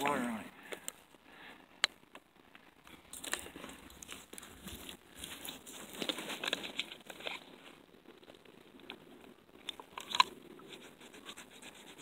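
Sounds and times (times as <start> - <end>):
dry dirt and rocks crunching: 0.0 - 12.0.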